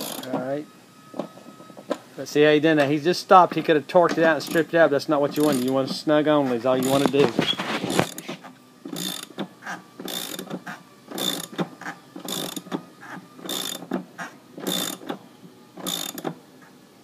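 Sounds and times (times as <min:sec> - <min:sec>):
ratchet clicking: 0:05.4 - 0:05.8, 0:08.9 - 0:09.4, 0:10.0 - 0:11.6, 0:12.2 - 0:12.7, 0:13.4 - 0:14.0, 0:14.6 - 0:15.1, 0:15.8 - 0:16.3.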